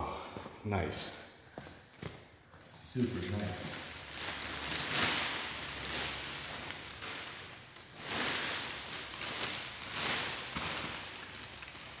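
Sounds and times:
plastic bag rustling and crinkling: 3.0s - 12.0s.

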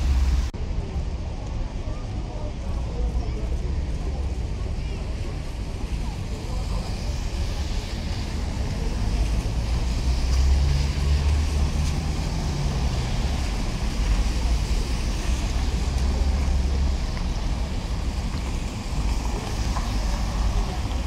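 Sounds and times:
cars passing on wet road: 0.0s - 0.5s, 5.0s - 21.0s
low traffic rumble: 0.0s - 21.0s.

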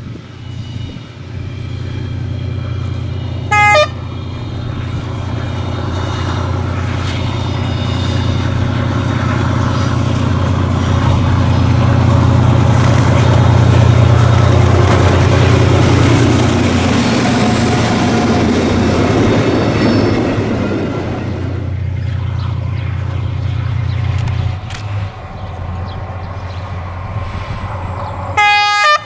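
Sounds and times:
diesel locomotive engine drone: 0.0s - 29.0s
train horn blast: 2.6s - 5.3s, 28.3s - 29.0s.

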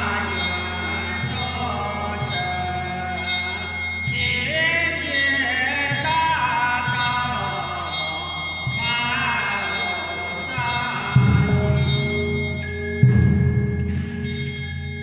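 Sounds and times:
background music with steady beat: 5.8s - 15.0s.

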